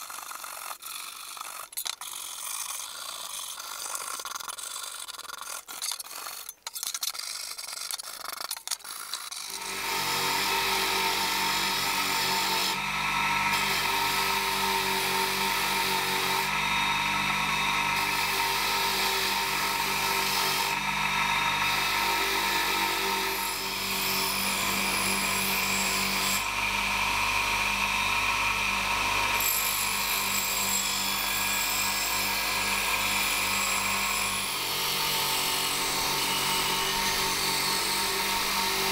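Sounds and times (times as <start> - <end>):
brush scratching on metal: 0.0 - 9.6
bench grinder humming: 9.3 - 38.9.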